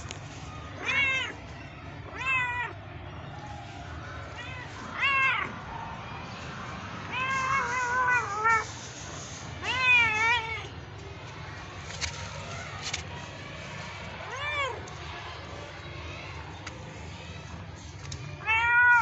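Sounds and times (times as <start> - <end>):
cat meowing: 0.8 - 1.4, 7.1 - 8.6, 9.6 - 10.7, 18.4 - 19.0.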